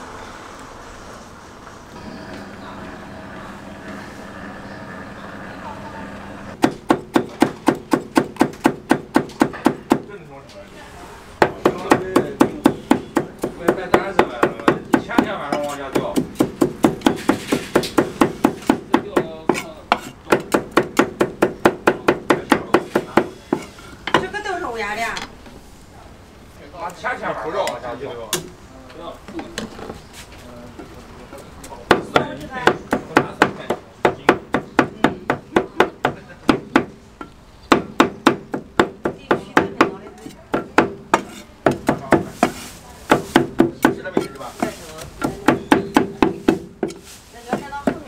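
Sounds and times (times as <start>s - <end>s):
cleavers chopping on wooden block: 6.6s - 10.1s, 11.4s - 24.3s, 31.9s - 48.0s.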